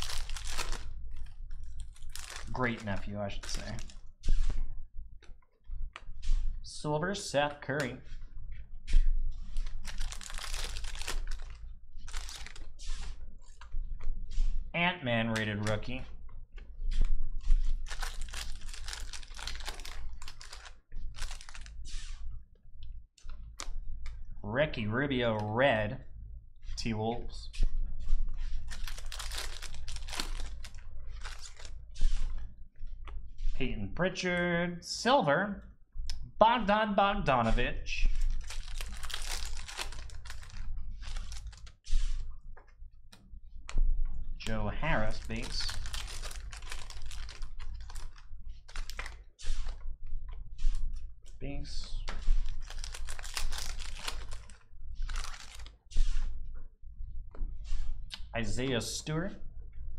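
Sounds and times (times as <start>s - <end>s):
cards clicking and rustling: 0.0s - 4.0s, 9.8s - 12.7s, 17.9s - 22.0s, 28.7s - 31.8s, 38.2s - 41.7s, 45.1s - 49.2s, 52.1s - 55.8s
foil wrapper crinkling and tearing: 0.0s - 4.0s, 9.7s - 12.7s, 17.8s - 21.8s, 28.7s - 31.8s, 38.2s - 41.8s, 44.9s - 49.3s, 52.4s - 55.8s.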